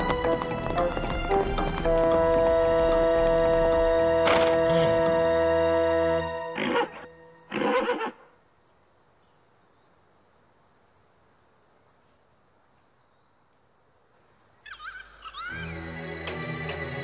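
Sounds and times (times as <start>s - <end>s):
warbling bird calls: 14.4s - 16.1s.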